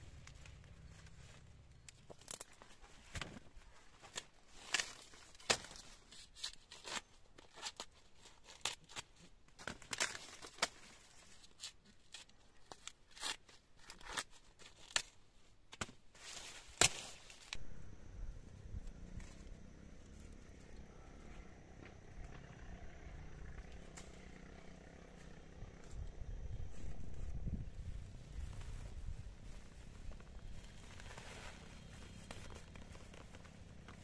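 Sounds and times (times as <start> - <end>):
low steady rumble: 0.0 - 2.0, 17.6 - 34.0
dry corn stalks rustling: 0.0 - 34.0
corn ears snapping: 1.8 - 3.4, 4.1 - 7.6, 14.1 - 17.8, 21.8 - 26.8.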